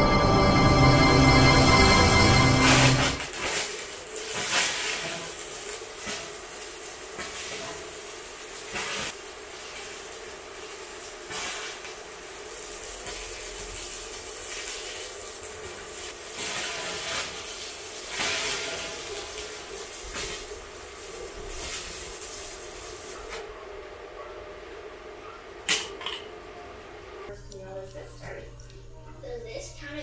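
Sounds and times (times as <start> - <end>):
welding arc crackling and sizzling: 0.0 - 23.4.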